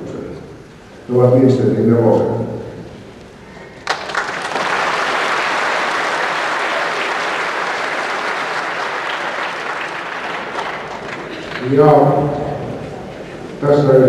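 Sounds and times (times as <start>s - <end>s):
audience applauding: 3.8s - 13.5s.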